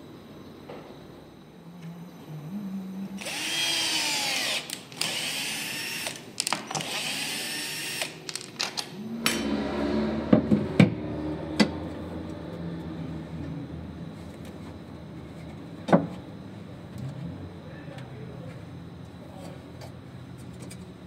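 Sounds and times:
steady low hum: 0:00.0 - 0:21.0
cordless drill driving screws: 0:03.2 - 0:08.2.

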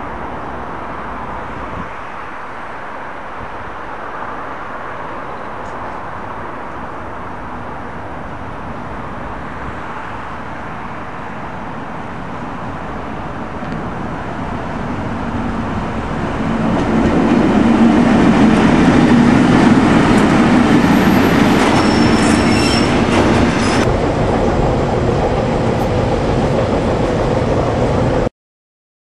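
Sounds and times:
diesel locomotive engine passing: 0:08.4 - 0:28.3
high wheel squeal: 0:20.6 - 0:23.9.

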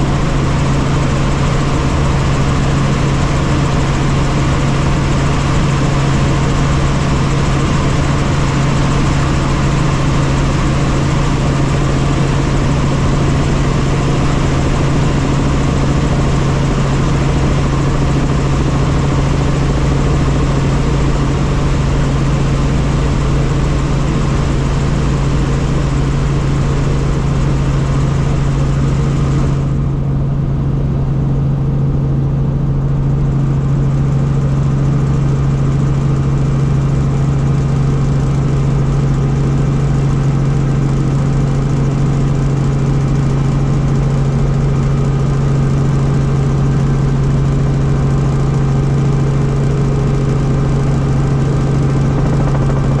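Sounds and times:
helicopter engine and rotors: 0:00.0 - 0:53.0.

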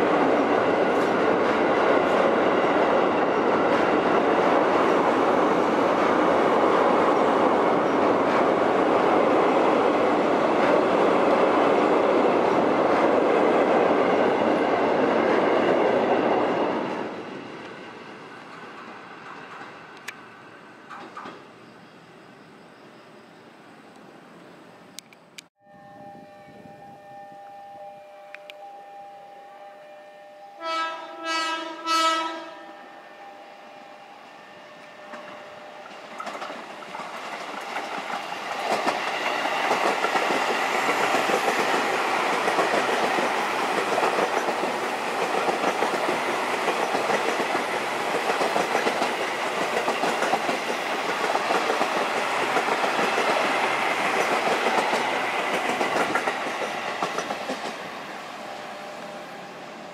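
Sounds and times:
electric train running past: 0:00.0 - 0:59.9
train horn blasts: 0:25.6 - 0:35.9.

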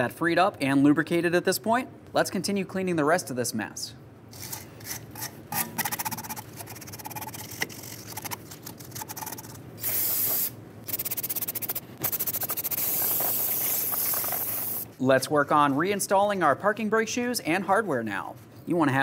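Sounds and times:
aerosol spray hissing: 0:09.8 - 0:14.9.

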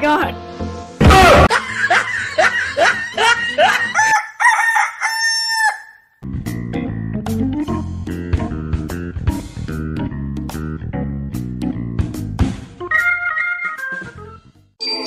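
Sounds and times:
background music: 0:00.0 - 0:04.0, 0:06.2 - 0:15.0
rooster crowing: 0:03.6 - 0:06.1.

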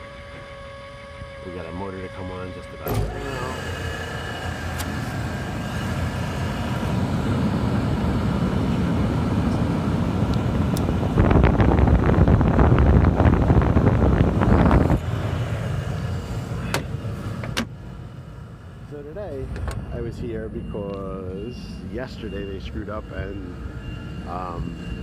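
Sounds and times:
blower motor rush of air: 0:00.0 - 0:25.0
loud rough rushing noise: 0:03.1 - 0:09.6.

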